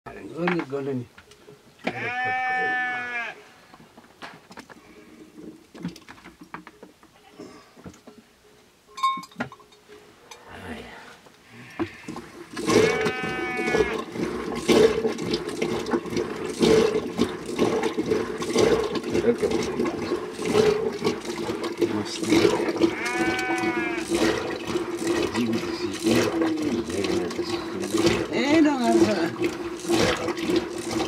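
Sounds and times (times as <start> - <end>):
butter churn sloshing: 11.9 - 31.0.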